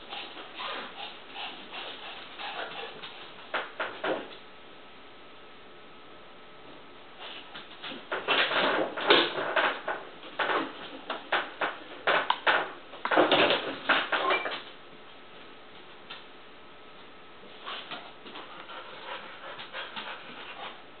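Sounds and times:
dog rummaging in metal trash can: 0:07.2 - 0:14.7.

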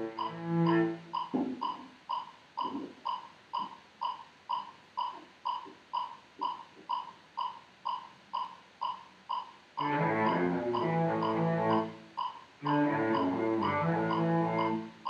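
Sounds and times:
electronic metronome beeping: 0:00.0 - 0:15.0
faint low knocks: 0:00.2 - 0:01.8.

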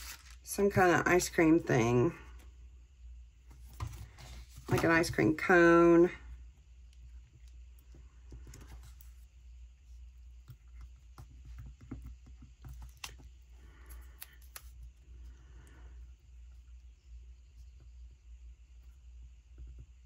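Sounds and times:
paper stickers rustling: 0:00.0 - 0:00.5
low steady hum: 0:00.0 - 0:20.0.

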